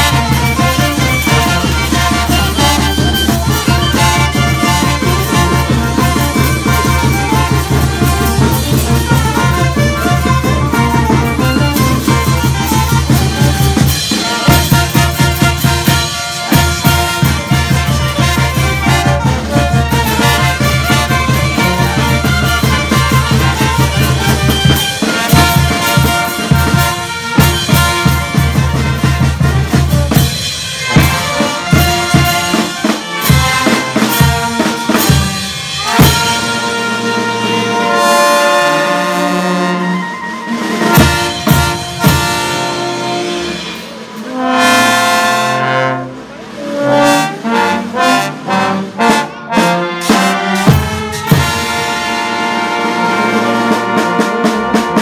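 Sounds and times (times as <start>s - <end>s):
bass drum: 0.0s - 32.6s
brass band playing dance tune: 0.0s - 55.0s.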